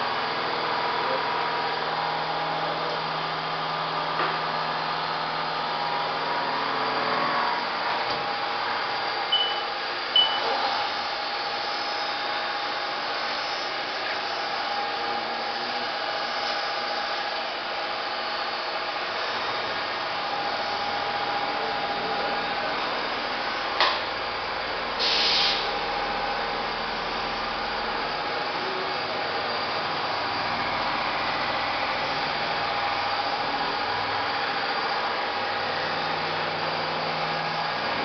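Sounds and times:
machining centre hiss and whir: 0.1 - 38.0
short loud hiss: 25.0 - 25.7.

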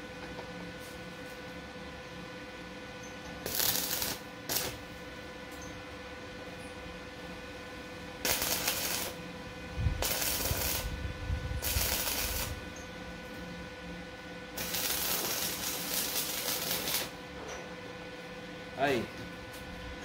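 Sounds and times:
welding arc crackling: 3.4 - 5.0, 8.2 - 9.2, 10.0 - 11.0, 11.6 - 12.7, 14.5 - 17.2.

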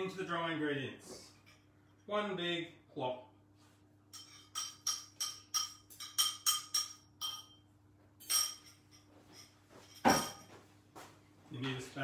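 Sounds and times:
fork clinking and scraping bowl: 4.1 - 7.6, 8.2 - 10.5.

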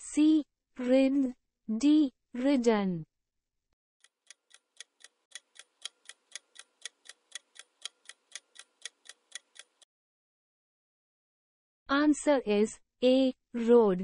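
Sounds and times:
clock ticking: 4.0 - 9.9.

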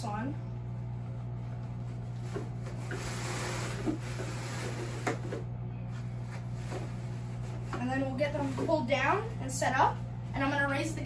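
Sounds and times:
low hum: 0.0 - 11.0
fabric rustling and rubbing: 1.0 - 5.3, 6.0 - 8.9.

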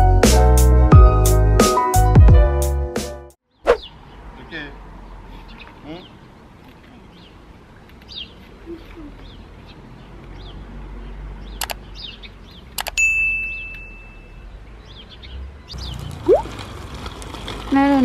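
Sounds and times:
birds chirping: 3.5 - 12.9, 13.5 - 16.5.

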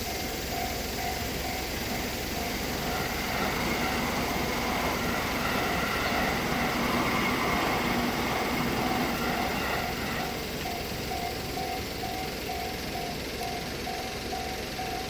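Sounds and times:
level-crossing bell ringing: 0.0 - 15.0
train passing: 0.0 - 15.0.

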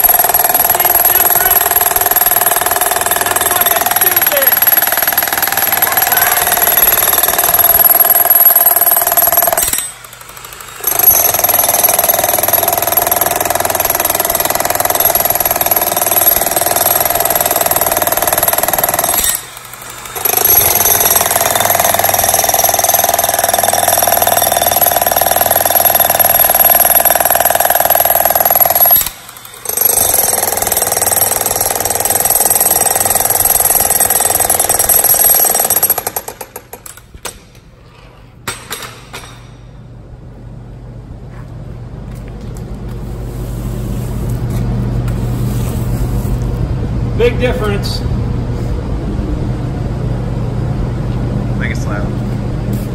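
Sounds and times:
jackhammer chiselling concrete: 0.0 - 36.8.

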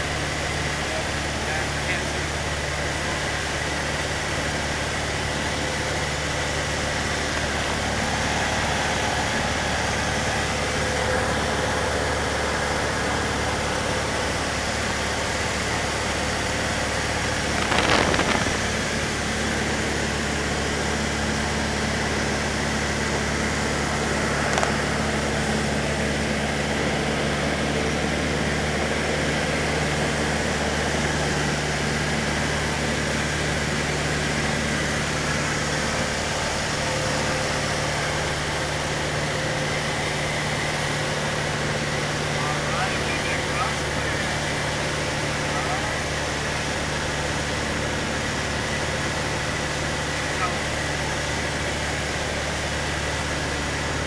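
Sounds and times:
small plane engine droning: 0.0 - 54.0
rush of noise: 16.4 - 19.7
wind noise: 17.5 - 18.8.

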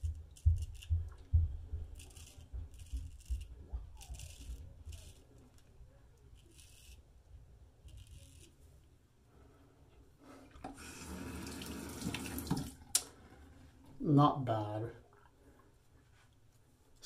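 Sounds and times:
dull low thumps: 0.0 - 4.0
razor scraping stubble: 0.0 - 7.1, 7.8 - 8.8.

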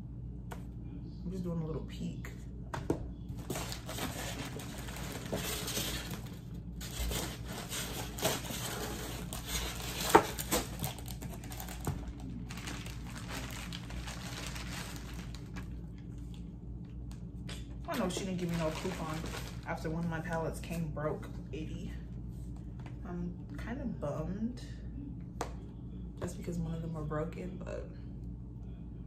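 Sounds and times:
bubble wrap crinkling: 3.4 - 16.4, 17.9 - 19.9.

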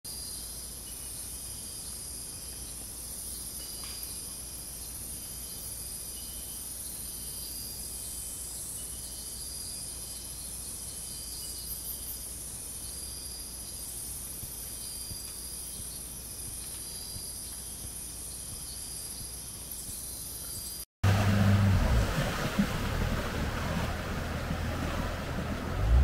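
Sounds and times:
high-pitched insect chorus: 0.1 - 20.8
low hum: 21.0 - 26.0.

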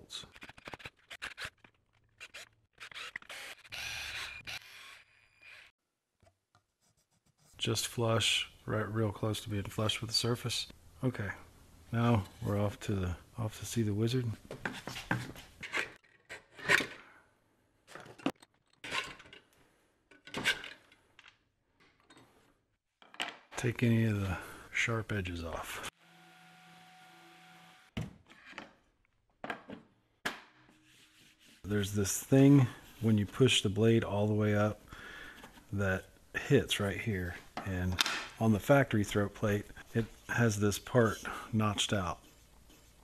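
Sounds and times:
drill motor running: 3.0 - 5.0.

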